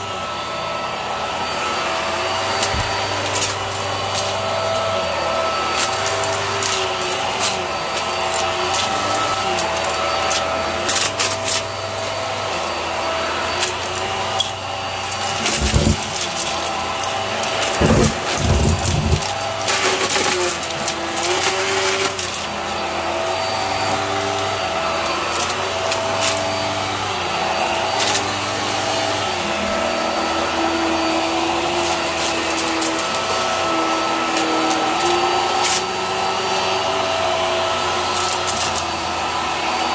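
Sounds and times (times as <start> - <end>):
vacuum cleaner running on carpet: 0.0 - 39.9
debris rattling in vacuum: 2.2 - 12.6, 13.5 - 22.6.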